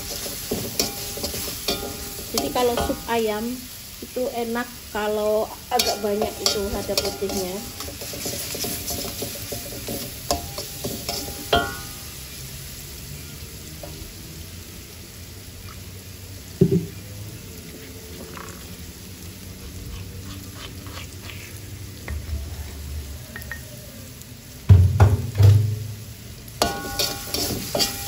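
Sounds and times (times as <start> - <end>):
metal spatula scraping a wok: 0.0 - 3.1, 5.7 - 12.2, 26.6 - 28.0
food sizzling in oil: 0.0 - 28.0.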